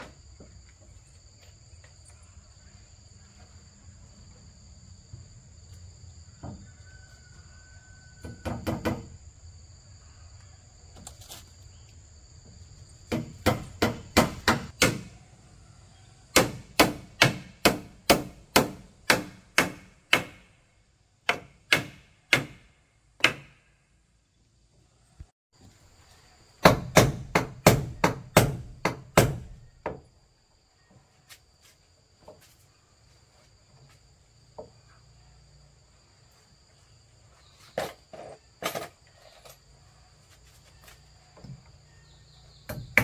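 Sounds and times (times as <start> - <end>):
insects chirring: 0.0 - 18.0, 24.2 - 43.0
hand tool striking wood: 13.1 - 15.1, 16.3 - 20.5, 21.3 - 23.6.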